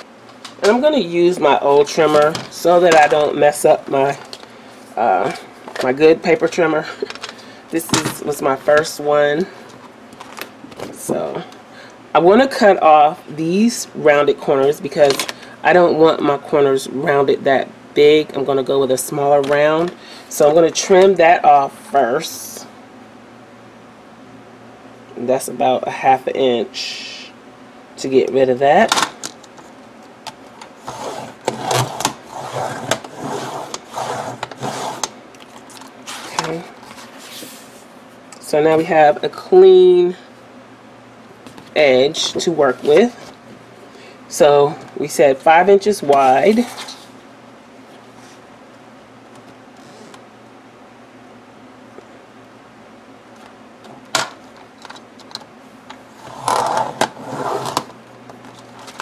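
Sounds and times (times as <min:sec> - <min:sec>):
trimmer blade scraping: 0:30.8 - 0:35.1, 0:56.2 - 0:57.9
plastic sheet scraping and rustling: 0:56.1 - 0:57.9.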